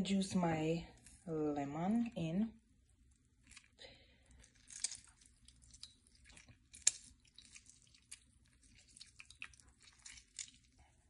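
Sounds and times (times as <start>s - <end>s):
lemon squishing and dripping: 2.7s - 11.0s.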